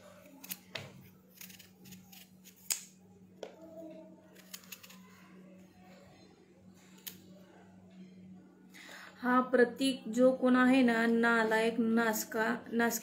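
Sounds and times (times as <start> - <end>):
knife cutting pumpkin rind: 0.2 - 2.9.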